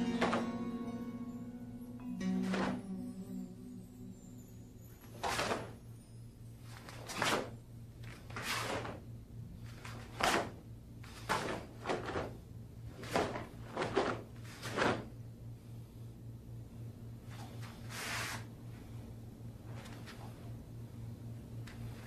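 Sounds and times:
low steady hum: 0:00.0 - 0:22.0
uniform snapping and swishing: 0:00.2 - 0:00.6, 0:02.4 - 0:02.8, 0:05.2 - 0:05.8, 0:06.7 - 0:15.2.

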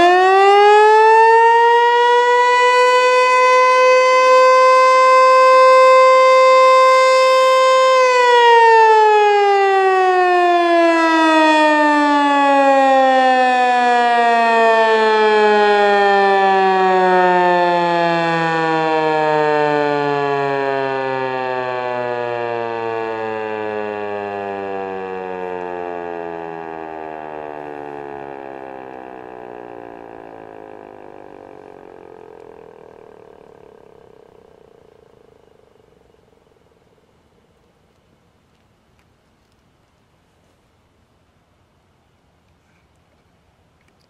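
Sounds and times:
warning siren: 0:00.0 - 0:37.7.

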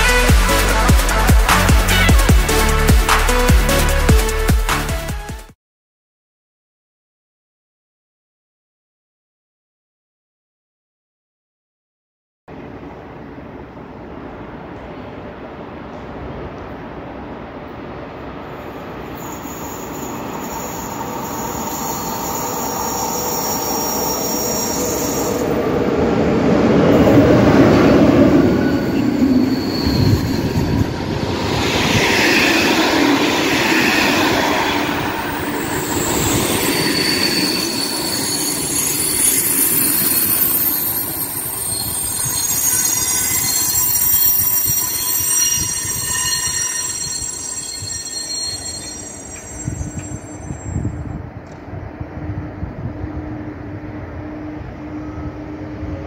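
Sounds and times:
passenger train running: 0:00.0 - 0:04.5, 0:12.5 - 0:56.0
train brakes squealing: 0:18.6 - 0:25.8, 0:27.0 - 0:51.2.

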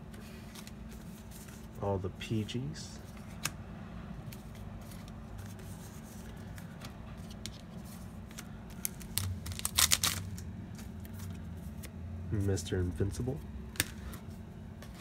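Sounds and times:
steady low hum: 0:00.0 - 0:15.0
cards and wrapper clicking: 0:08.3 - 0:10.4
foil pack tearing: 0:08.8 - 0:10.4.

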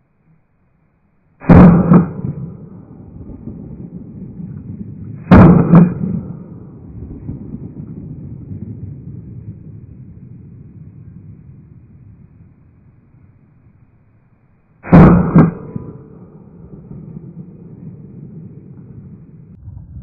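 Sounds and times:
shotgun shots: 0:01.4 - 0:02.6, 0:05.3 - 0:06.4, 0:14.9 - 0:16.2
low rumble: 0:02.5 - 0:05.3, 0:06.0 - 0:13.8, 0:15.8 - 0:20.0.

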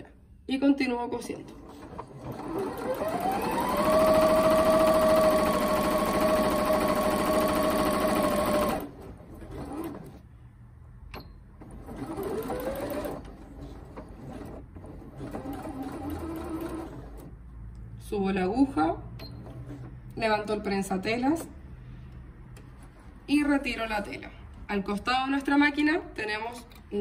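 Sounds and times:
sewing machine motor whine: 0:02.2 - 0:10.2.

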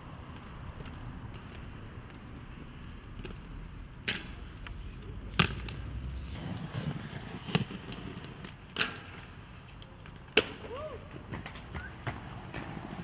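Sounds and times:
inline skates rolling on pavement: 0:00.0 - 0:13.0
skate impact clacks: 0:04.0 - 0:13.0.

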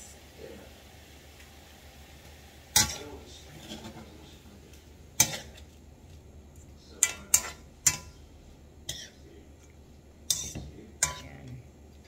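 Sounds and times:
metal ladle clinking on frying pan: 0:07.0 - 0:08.2, 0:10.3 - 0:11.2.

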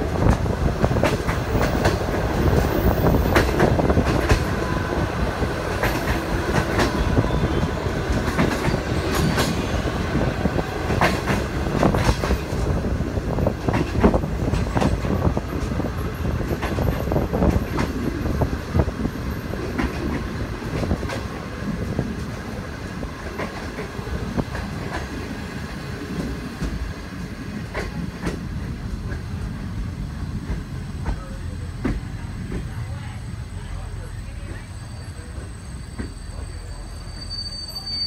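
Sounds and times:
wheels clacking over rail joints: 0:00.0 - 0:29.6
train carriages rumbling: 0:00.0 - 0:38.0.

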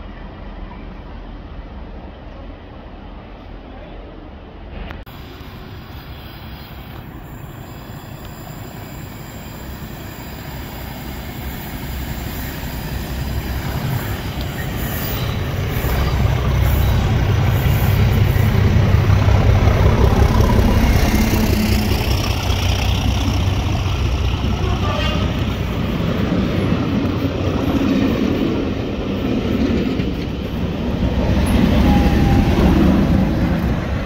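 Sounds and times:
diesel train passing: 0:00.0 - 0:34.0.

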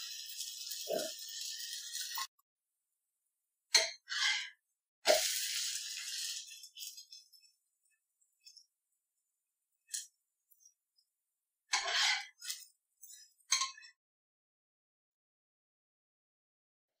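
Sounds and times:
batter sizzling on a hot pan: 0:00.0 - 0:02.4, 0:03.0 - 0:13.9.

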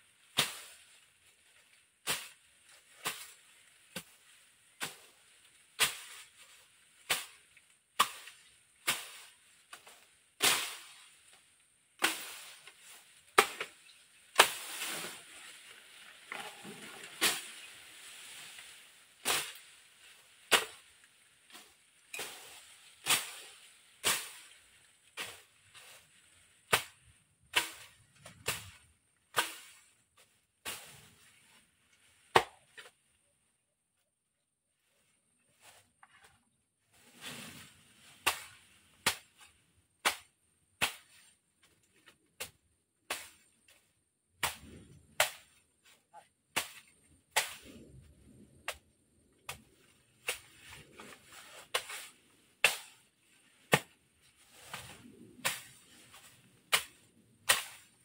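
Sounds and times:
rustling brush: 0:00.0 - 0:27.1, 0:34.8 - 0:42.6, 0:43.3 - 0:58.0
machete slashing brush: 0:05.8 - 0:11.1, 0:12.0 - 0:15.5, 0:16.4 - 0:19.8, 0:21.5 - 0:24.6, 0:26.7 - 0:29.8, 0:38.2 - 0:41.3, 0:44.4 - 0:45.6, 0:46.5 - 0:47.9, 0:50.2 - 0:53.1, 0:53.7 - 0:58.0.

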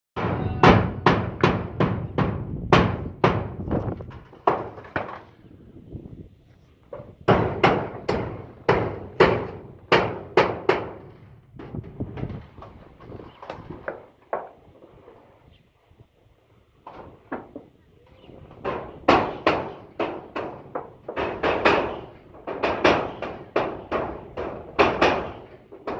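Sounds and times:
hammer on metal roofing: 0:00.2 - 0:05.1, 0:06.9 - 0:12.7, 0:18.4 - 0:25.9.

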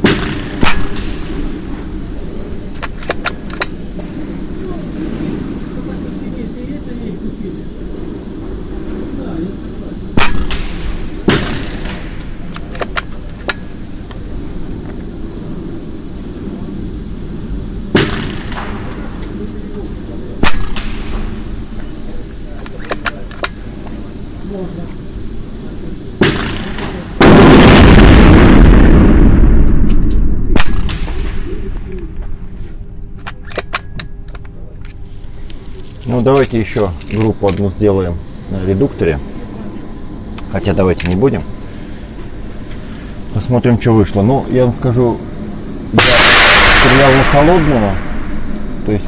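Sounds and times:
sharp crack: 0:00.0 - 0:01.8, 0:10.1 - 0:14.2, 0:17.9 - 0:19.4, 0:20.4 - 0:21.6, 0:26.2 - 0:32.2, 0:45.9 - 0:49.0
air rifle shots echoing: 0:00.0 - 0:02.0, 0:10.2 - 0:13.8, 0:17.9 - 0:19.3, 0:20.4 - 0:21.7, 0:26.2 - 0:31.6, 0:46.0 - 0:48.8
steady low hum: 0:00.0 - 0:49.0
rifle action metallic clicks: 0:02.8 - 0:03.7, 0:12.5 - 0:13.6, 0:22.6 - 0:23.6, 0:33.2 - 0:35.0
loud rushing rumble: 0:03.4 - 0:12.5, 0:25.0 - 0:33.1, 0:37.8 - 0:49.0.

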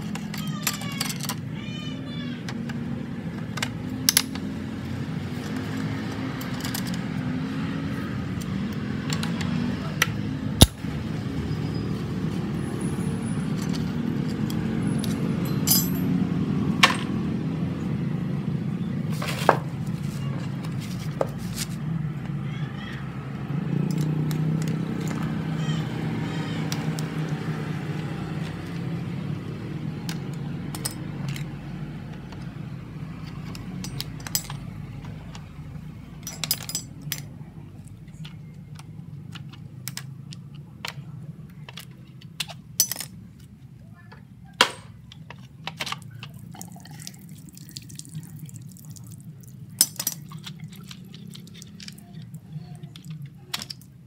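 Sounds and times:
hand tools clicking on metal: 0:33.2 - 0:35.5, 0:49.8 - 0:53.9.

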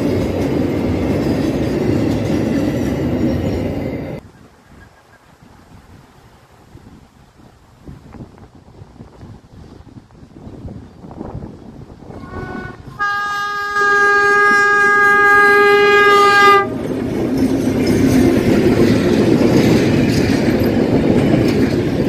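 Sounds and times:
train engines and wheels rumbling: 0:00.0 - 0:22.0
locomotive horn blast: 0:12.1 - 0:16.8.

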